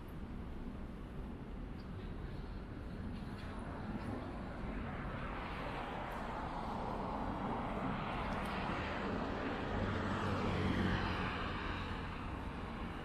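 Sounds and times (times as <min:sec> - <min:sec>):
street traffic noise: 0:00.0 - 0:13.0
vehicle passing hum: 0:02.3 - 0:13.0.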